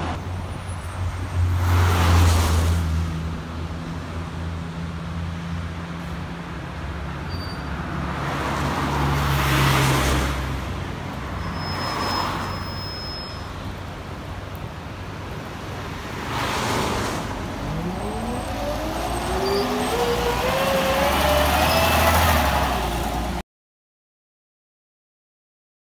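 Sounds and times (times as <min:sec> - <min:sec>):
traffic swishing past: 0:00.0 - 0:23.4
bus diesel engine accelerating: 0:16.6 - 0:23.4.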